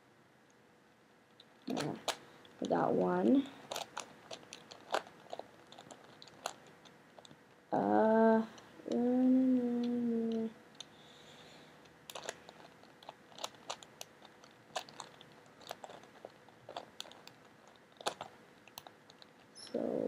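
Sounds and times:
puzzle faces clicking as twisted: 0:01.3 - 0:02.8, 0:03.6 - 0:07.4, 0:11.8 - 0:19.7.

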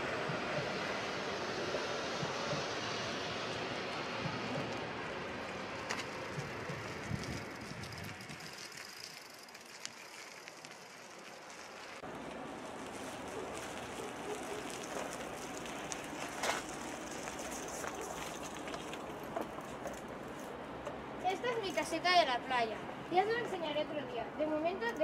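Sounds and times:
bicycles riding over paving: 0:04.0 - 0:20.5
wind on microphone: 0:06.2 - 0:08.7.

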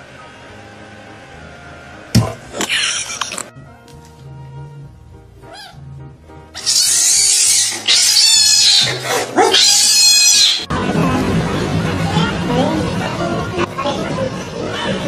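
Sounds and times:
quiet background music: 0:00.0 - 0:15.0
cat hissing angrily: 0:06.6 - 0:10.6.

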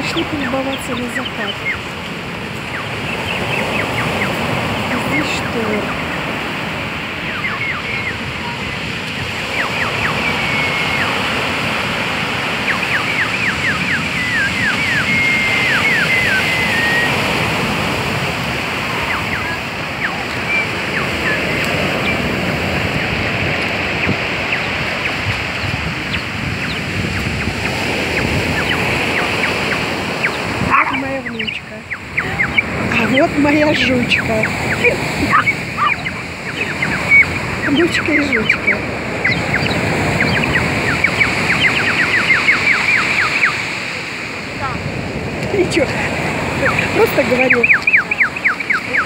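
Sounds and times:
high chirps and whistles: 0:07.3 - 0:11.4, 0:12.6 - 0:17.5, 0:18.8 - 0:22.3, 0:26.1 - 0:43.7, 0:46.6 - 0:49.0.

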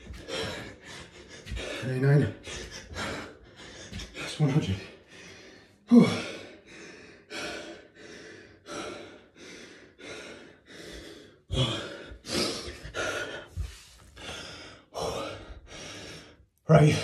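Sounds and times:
man panting and gasping: 0:00.0 - 0:17.0.

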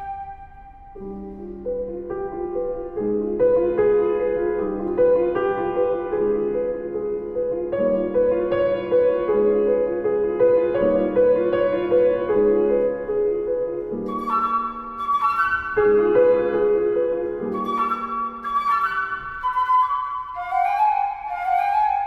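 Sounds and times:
piano playing repeating figure: 0:00.0 - 0:20.4
held flute note: 0:14.1 - 0:16.5, 0:17.5 - 0:22.0.

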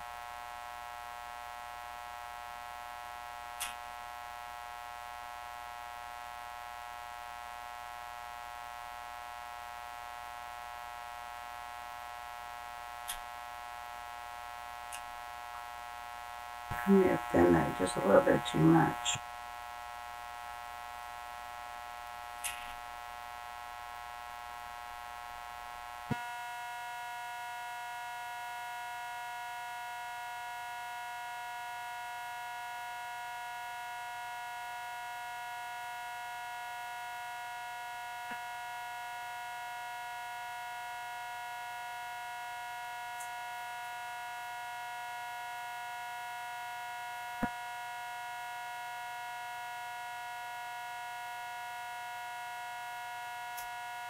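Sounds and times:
electrical hum: 0:07.1 - 0:29.8.

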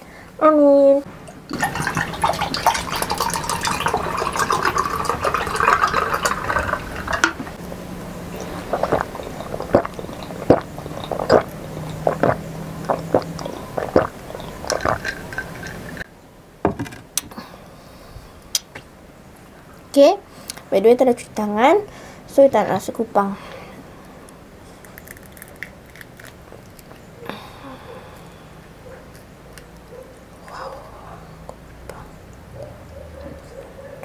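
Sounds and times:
person gulping: 0:01.5 - 0:07.6, 0:08.3 - 0:16.0
drink poured over ice: 0:01.6 - 0:07.5.

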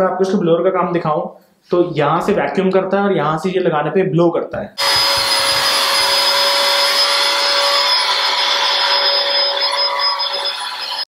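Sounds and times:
handheld vacuum cleaner running: 0:04.8 - 0:11.0.

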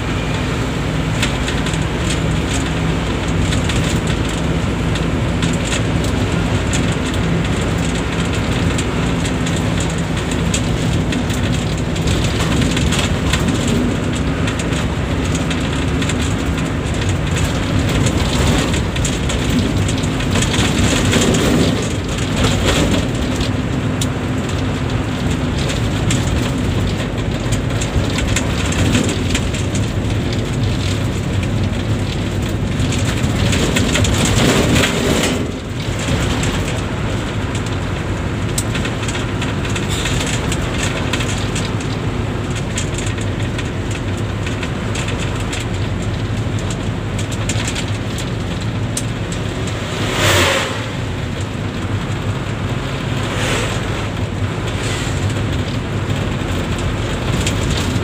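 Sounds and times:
bus engine hum and road noise: 0:00.0 - 0:58.0.

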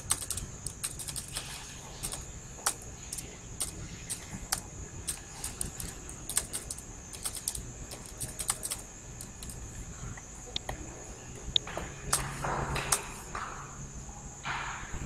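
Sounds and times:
keyboard key clicks: 0:00.0 - 0:09.6, 0:12.1 - 0:13.1.

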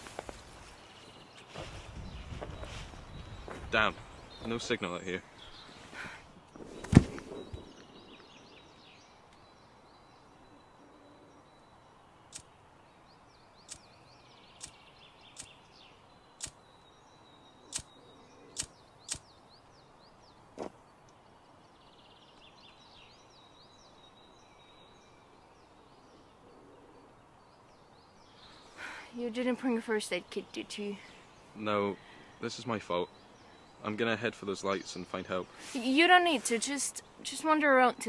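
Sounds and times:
faint birdsong chirping: 0:00.0 - 0:38.0
sharp clicks or snaps: 0:17.7 - 0:17.9.

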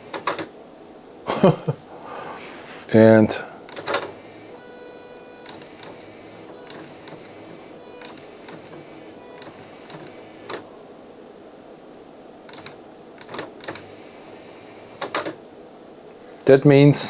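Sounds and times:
disc tray motor whine: 0:00.0 - 0:01.1, 0:02.0 - 0:16.8
sharp click: 0:05.4 - 0:06.1, 0:12.5 - 0:13.9.

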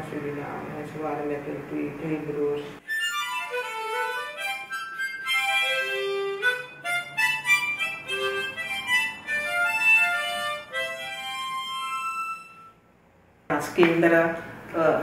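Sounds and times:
harmonica melody: 0:02.8 - 0:12.9.

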